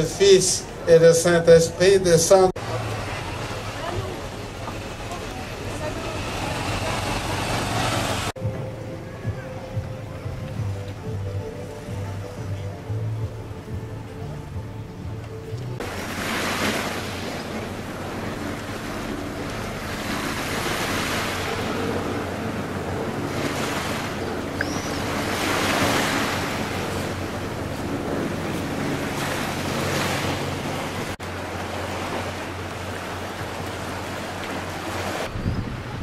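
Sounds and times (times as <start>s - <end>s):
waves washing onto rocky shore: 15.8s - 27.7s
wind on microphone: 34.9s - 36.0s.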